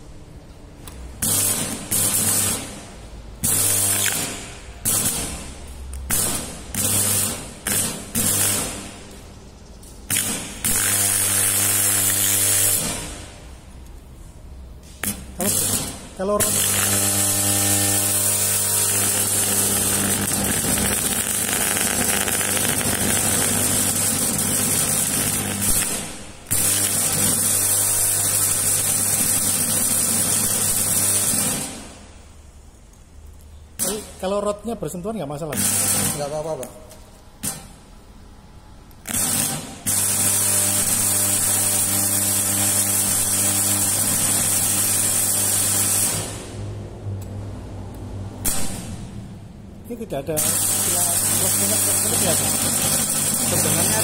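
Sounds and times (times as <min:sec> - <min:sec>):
low electrical hum: 0:00.0 - 0:54.0
electric arc hissing: 0:01.2 - 0:09.2, 0:10.1 - 0:13.5, 0:14.8 - 0:32.0, 0:39.0 - 0:46.6, 0:50.4 - 0:54.0.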